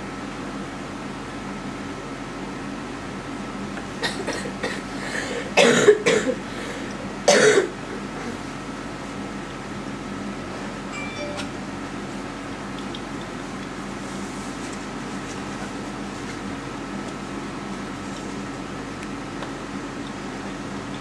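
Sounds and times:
person coughing: 4.0s - 6.4s, 7.3s - 7.7s.

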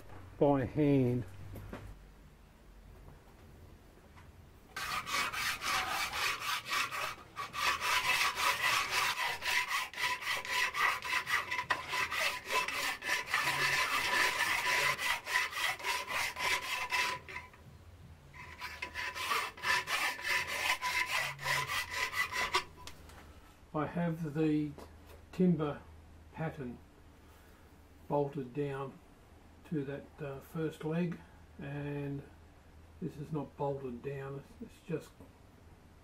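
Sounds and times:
hand file rasping on metal: 4.7s - 17.6s, 18.4s - 22.8s.

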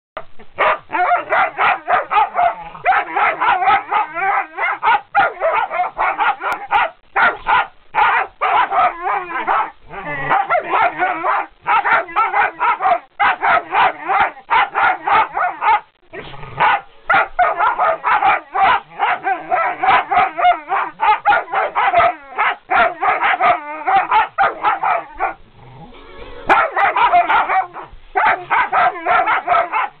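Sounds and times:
dog barking rapidly: 0.6s - 15.9s, 16.6s - 25.4s, 26.5s - 30.0s.

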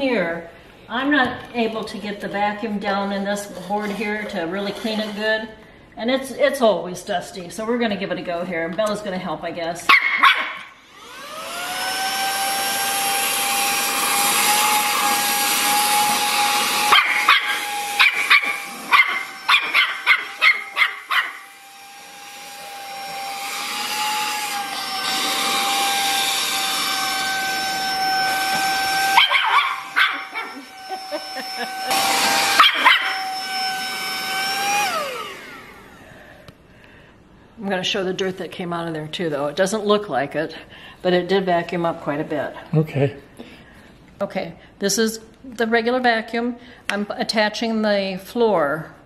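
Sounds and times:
handheld vacuum motor whine: 3.6s - 5.4s, 10.2s - 36.6s
puppy barking: 9.9s - 10.7s, 16.9s - 21.4s, 29.2s - 30.6s, 32.6s - 33.2s.

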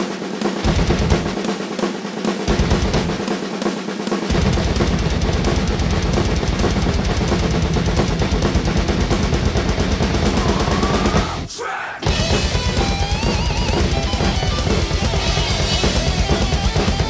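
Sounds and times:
rapid bass drum: 0.0s - 3.6s, 4.2s - 17.0s
fast rock drumming: 0.0s - 17.0s
heavy metal song: 4.3s - 17.0s.

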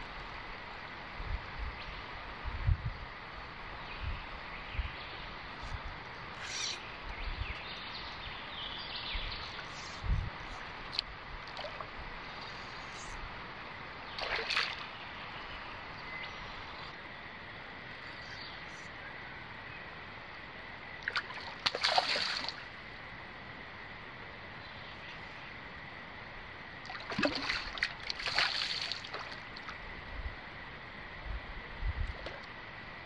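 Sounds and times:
river flowing: 7.8s - 24.6s
fish splashing in water: 14.2s - 14.9s, 21.1s - 22.6s, 26.9s - 29.5s.

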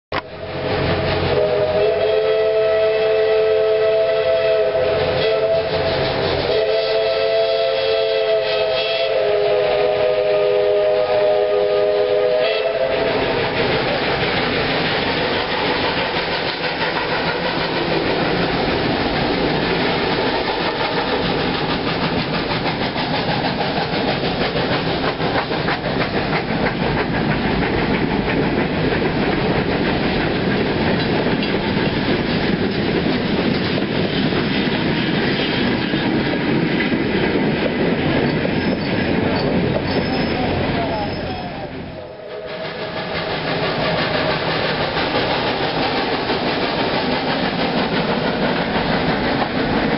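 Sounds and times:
train rushing past: 0.1s - 49.9s
steam locomotive whistle chord: 0.4s - 13.4s, 41.9s - 43.5s
wheels clicking over rail joints: 13.0s - 41.4s, 42.6s - 49.9s.

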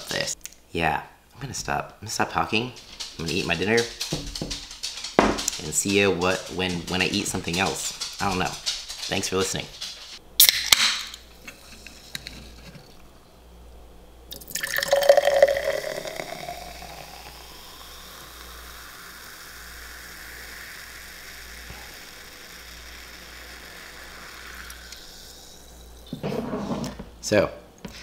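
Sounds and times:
water pouring into a glass: 14.3s - 19.4s
bubbles fizzing: 14.3s - 26.1s.

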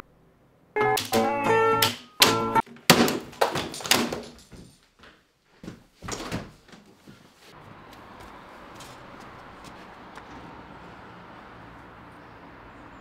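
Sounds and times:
balcony door opening: 0.8s - 4.8s, 6.0s - 7.0s
sharp knocks and thumps: 1.0s - 6.9s
faint street noise: 5.6s - 13.0s.

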